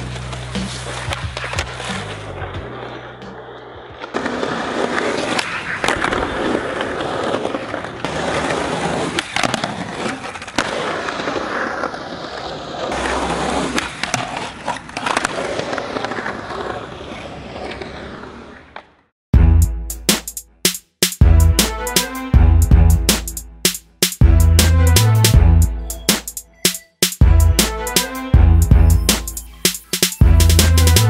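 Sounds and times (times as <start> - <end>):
skateboard clacking on ground: 0.0 - 19.0
skateboard wheels rolling on concrete: 0.0 - 19.1.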